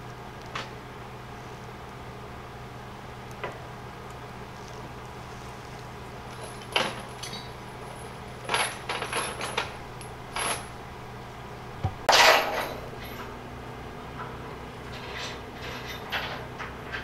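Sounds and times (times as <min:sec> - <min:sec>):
low engine hum: 0:00.0 - 0:17.0
metal chain clinking: 0:06.4 - 0:10.8, 0:12.1 - 0:13.3.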